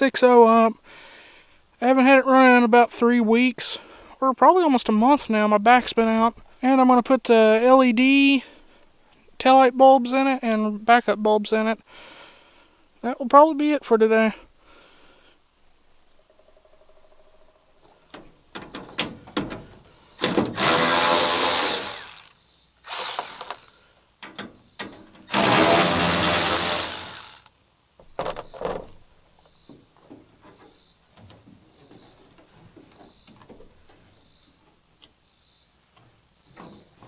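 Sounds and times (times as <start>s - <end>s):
cordless ratchet spinning: 20.6s - 22.3s, 22.9s - 23.7s, 25.3s - 27.5s.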